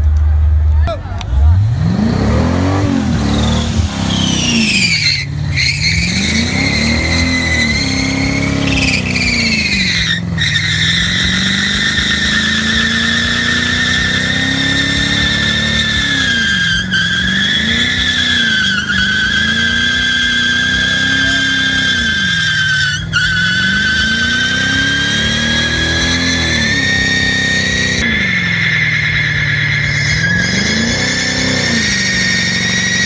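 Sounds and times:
car engine revving: 0.0s - 33.0s
tyres squealing: 2.1s - 28.1s.

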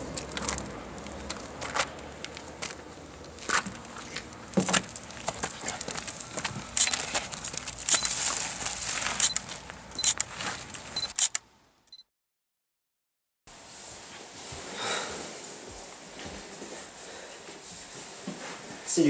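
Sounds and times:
handling rustles: 0.1s - 11.0s
camera shutter click: 11.1s - 11.4s.

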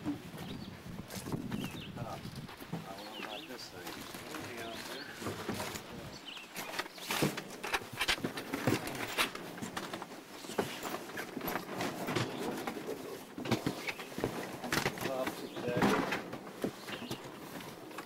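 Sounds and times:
birds chirping: 0.0s - 9.7s, 10.3s - 17.9s
footsteps on wooden dock: 0.0s - 18.0s
knocks and thuds on wooden dock: 6.7s - 17.4s.

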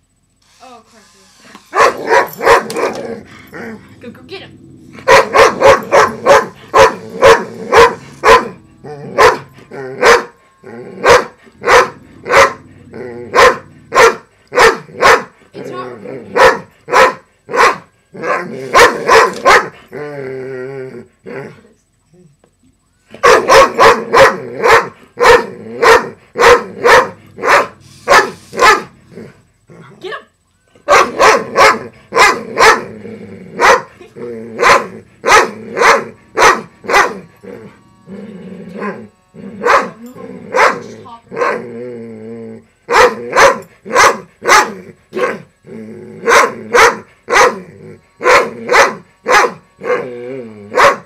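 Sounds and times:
large dog barking: 1.7s - 3.7s, 4.9s - 15.4s, 16.2s - 19.9s, 23.2s - 29.4s, 30.9s - 37.7s, 38.8s - 41.8s, 42.9s - 45.5s, 46.2s - 51.0s
dog growling: 1.8s - 17.0s, 18.1s - 21.8s, 23.4s - 30.1s, 30.9s - 51.0s.

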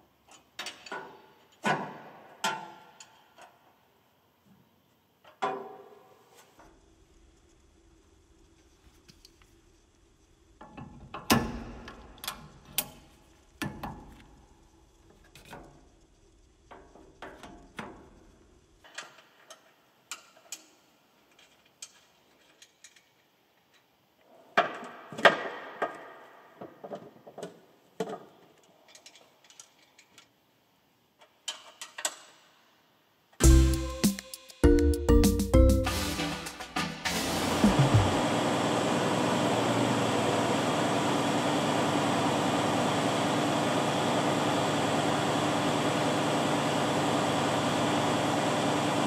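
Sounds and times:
music: 33.4s - 38.2s.

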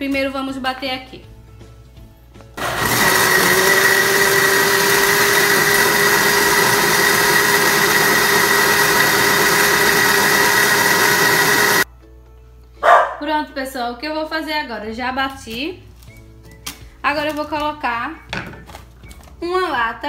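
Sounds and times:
electric blender running: 2.6s - 11.9s.

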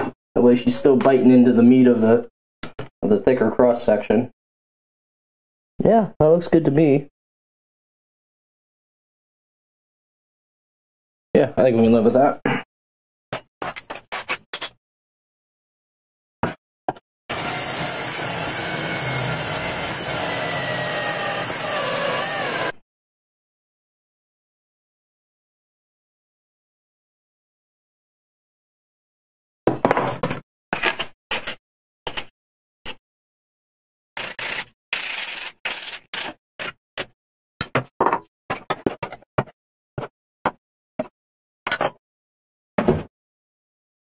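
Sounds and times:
power drill boring into wood: 17.3s - 22.8s, 34.2s - 36.4s.

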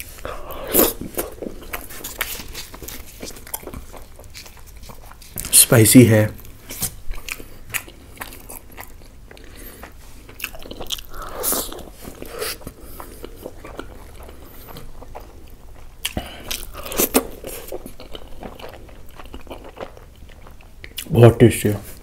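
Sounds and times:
chewing and biting food: 0.0s - 5.6s, 6.4s - 21.2s.

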